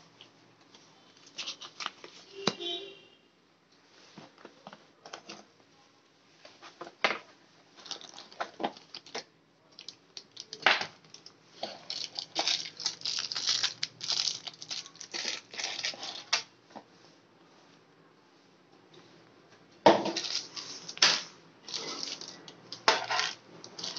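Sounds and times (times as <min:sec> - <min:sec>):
cardboard and plastic packaging handled: 0:00.6 - 0:02.8, 0:06.5 - 0:16.5, 0:19.9 - 0:23.9.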